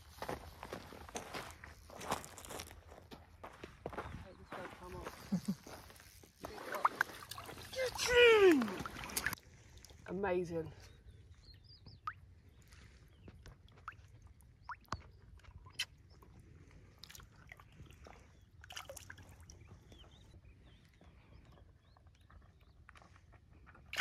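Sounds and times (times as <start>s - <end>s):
water sloshing and dripping: 6.5s - 10.1s, 16.8s - 19.6s.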